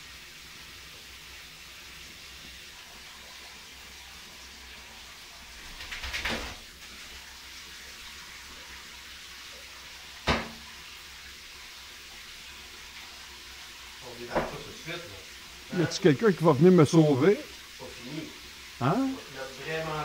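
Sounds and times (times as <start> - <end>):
water running from bathtub tap: 0.0 - 20.0
wet dog shaking splashes: 5.6 - 6.7
sharp knock: 10.3 - 10.6.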